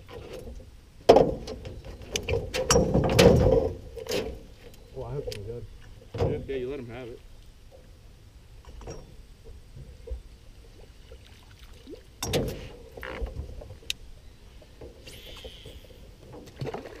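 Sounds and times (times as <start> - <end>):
knocks against metal canoe hull: 1.1 - 4.4.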